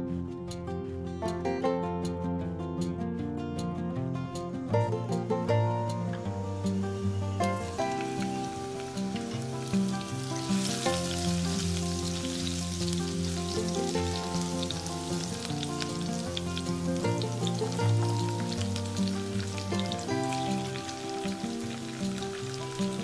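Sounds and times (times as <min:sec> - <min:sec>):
background music: 0:00.0 - 0:23.0
hot oil sizzling and crackling: 0:04.8 - 0:23.0.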